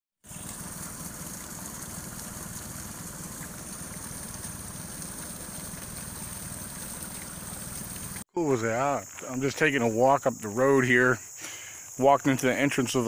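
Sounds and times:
waterfall splashing on rock: 0.2 - 8.2.

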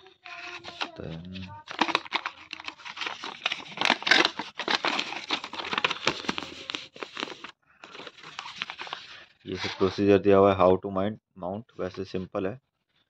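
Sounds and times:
packaging crinkling: 0.3 - 10.0.

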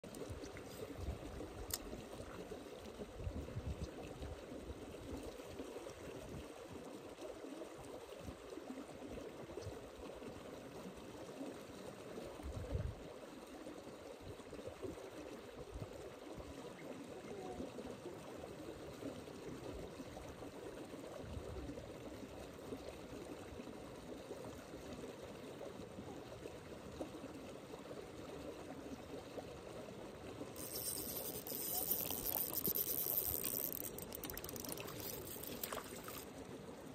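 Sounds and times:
running water rushing: 29.2 - 36.9.

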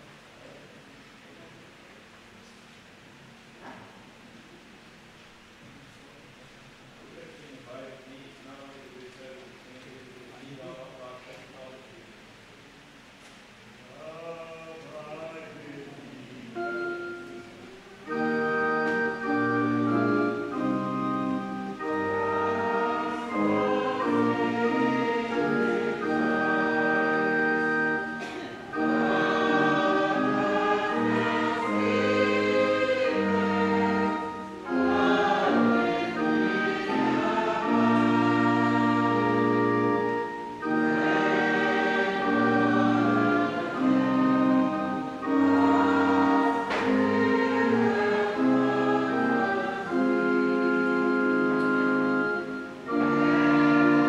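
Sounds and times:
choir singing long notes: 16.6 - 54.0.

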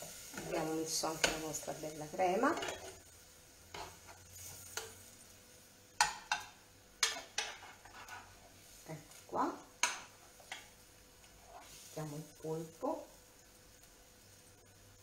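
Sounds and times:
spoon knocking on frying pan: 1.2 - 1.5, 6.0 - 7.8, 9.8 - 10.7.

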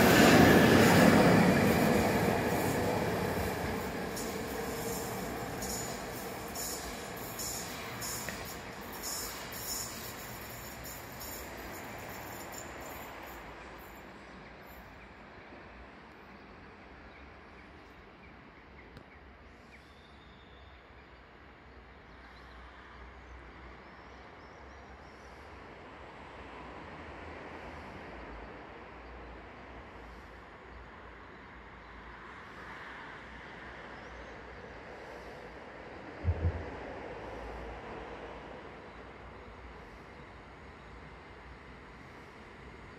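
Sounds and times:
station ambience hum: 0.0 - 13.7
distant electric train rumble: 0.0 - 17.1, 25.6 - 42.9.

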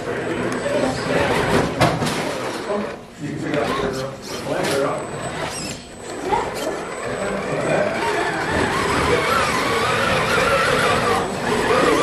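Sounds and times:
electric motor and gears whining: 4.3 - 12.0.

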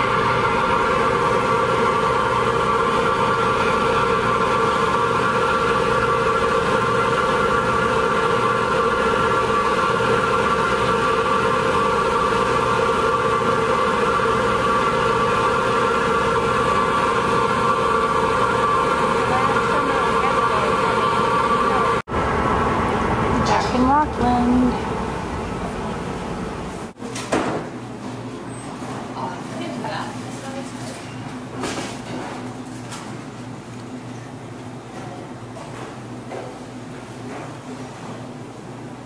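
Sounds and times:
ferry engines humming: 16.2 - 27.0.

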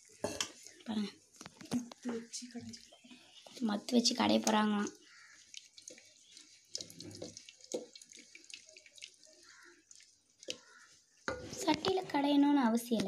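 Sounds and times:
wet sloshing and splashing: 4.5 - 11.6.

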